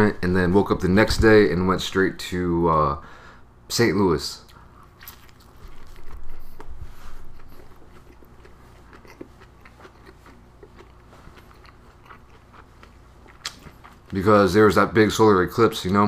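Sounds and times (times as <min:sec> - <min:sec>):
person chewing: 0:04.5 - 0:14.2.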